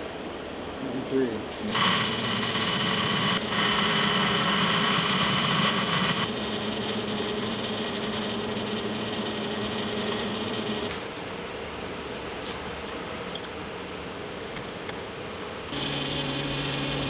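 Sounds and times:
metal lathe running: 0:01.6 - 0:10.9, 0:15.7 - 0:17.0
file rubbing spinning metal: 0:01.7 - 0:10.9.

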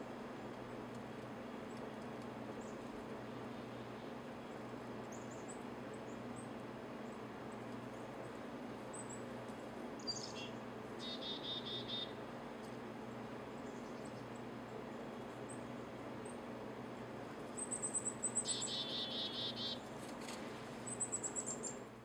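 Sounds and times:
steady background hum: 0:00.0 - 0:22.0
small birds chirping: 0:03.5 - 0:09.3, 0:10.0 - 0:12.2, 0:13.6 - 0:14.8, 0:17.5 - 0:19.8, 0:20.8 - 0:21.9.

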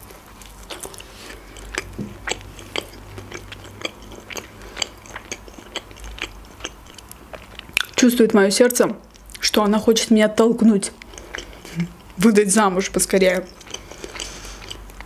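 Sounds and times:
chewing crunches: 0:00.0 - 0:08.1, 0:10.9 - 0:12.2, 0:12.8 - 0:15.0.

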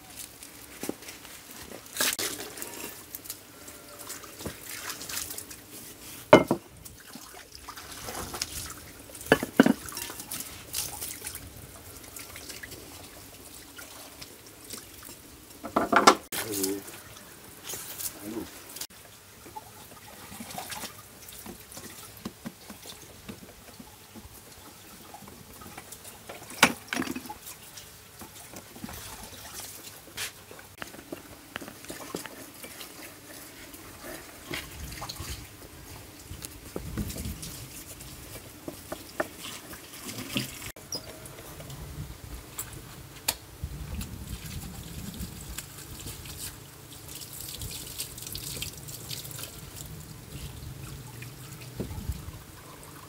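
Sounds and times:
water splashing and trickling: 0:00.0 - 0:43.0, 0:43.6 - 0:53.0.

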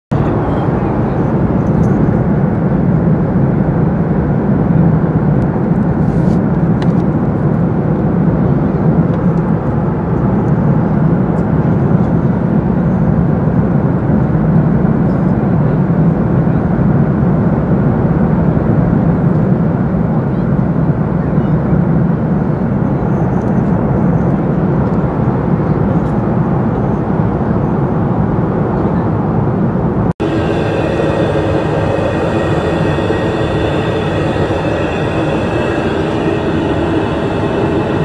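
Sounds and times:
airliner cabin engine noise: 0:00.1 - 0:25.0, 0:28.8 - 0:38.0.

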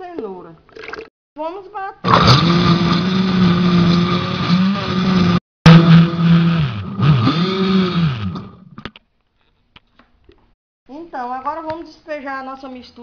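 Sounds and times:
blender motor running: 0:02.1 - 0:08.7.

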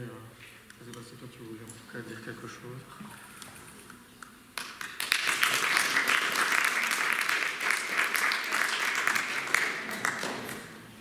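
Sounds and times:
audience applauding: 0:04.6 - 0:10.8.

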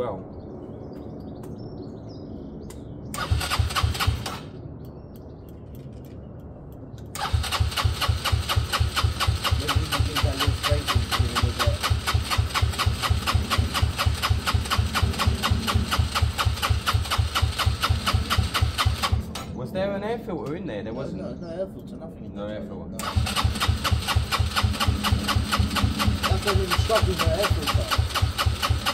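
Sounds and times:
scooter engine running: 0:07.2 - 0:19.1, 0:23.1 - 0:28.9.

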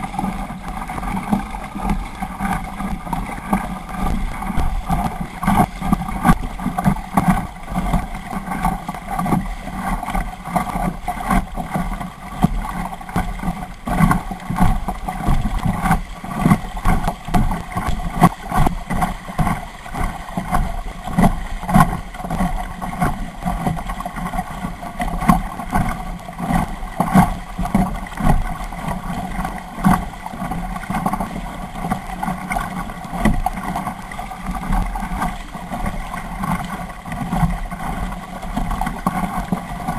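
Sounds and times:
steady hum: 0:00.0 - 0:07.6
paddle splashes: 0:00.0 - 0:39.9
water knocking against hull: 0:00.0 - 0:39.9.

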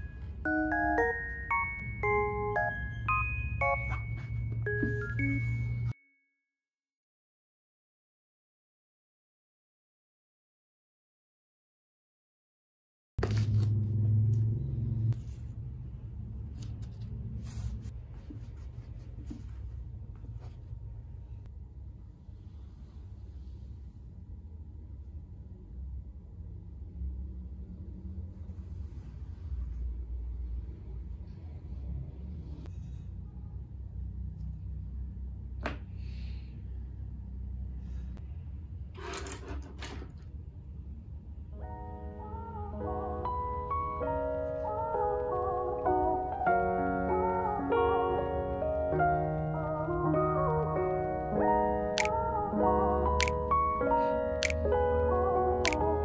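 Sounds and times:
low room hum: 0:13.2 - 0:43.2
sharp click: 0:52.0 - 0:52.2, 0:53.2 - 0:53.4, 0:54.4 - 0:54.6, 0:55.6 - 0:55.8.

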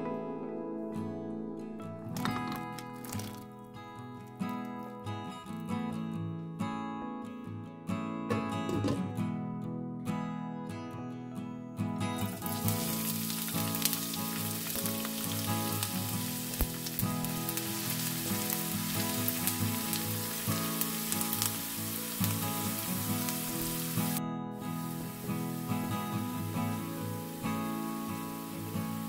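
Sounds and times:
onion sizzling in hot oil: 0:02.6 - 0:03.5, 0:12.3 - 0:29.0.

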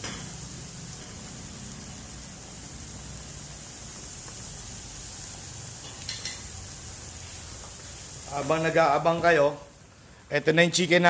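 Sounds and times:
broth bubbling in a wok: 0:00.0 - 0:08.8.

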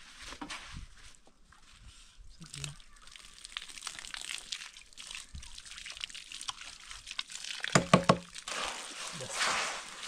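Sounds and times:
water pouring from hose: 0:02.4 - 0:10.0
knocks on metal wheelbarrow: 0:07.8 - 0:08.3
trowel scraping wet cement: 0:08.5 - 0:10.0.

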